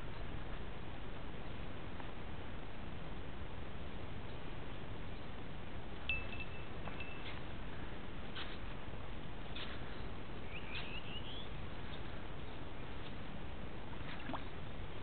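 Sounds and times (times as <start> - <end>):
bird chirping: 9.6 - 12.6.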